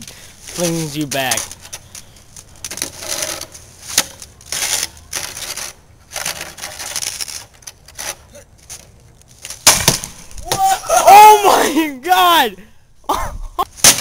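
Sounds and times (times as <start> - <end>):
plastic shovel scraping concrete: 0.4 - 9.6
loud thump: 9.6 - 10.7.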